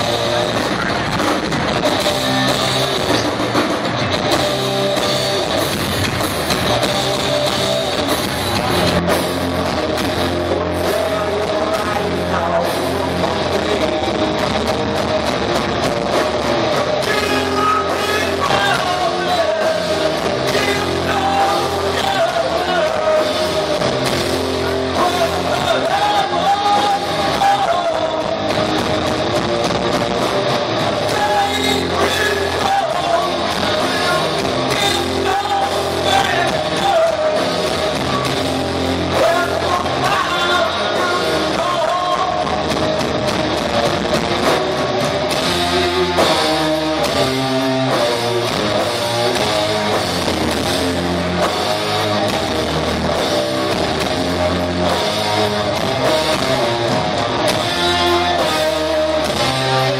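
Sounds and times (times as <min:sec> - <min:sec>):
bass: 0:00.0 - 0:59.9
drums: 0:00.0 - 0:59.9
electric guitars: 0:00.0 - 0:59.9
person singing: 0:10.4 - 0:14.1, 0:17.0 - 0:28.5, 0:31.0 - 0:37.9, 0:39.1 - 0:42.7.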